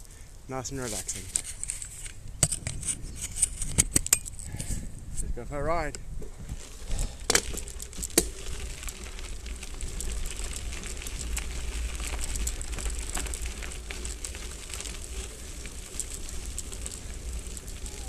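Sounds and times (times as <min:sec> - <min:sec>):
bike tyres crunching on gravel: 0:00.0 - 0:03.2, 0:04.3 - 0:18.0
small clicks and rattles: 0:06.9 - 0:18.0.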